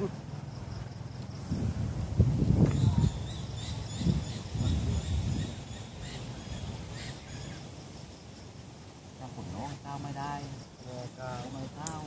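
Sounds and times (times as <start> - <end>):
birds chirping: 2.4 - 8.1.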